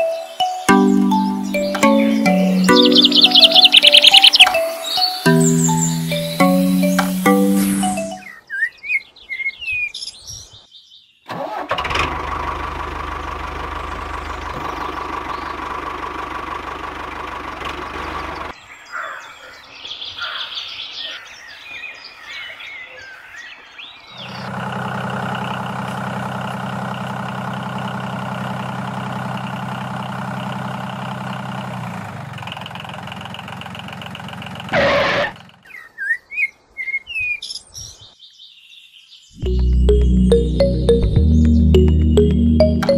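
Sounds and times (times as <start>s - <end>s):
birds chirping: 0.0s - 11.3s
engine running: 11.7s - 18.5s, 24.2s - 35.3s, 39.4s - 42.9s.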